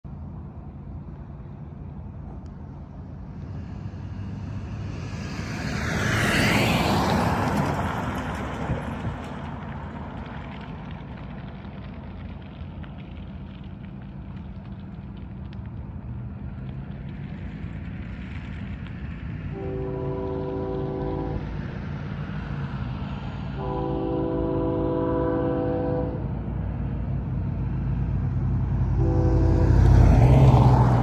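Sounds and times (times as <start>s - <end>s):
car driving past: 2.3s - 12.5s, 25.6s - 31.0s.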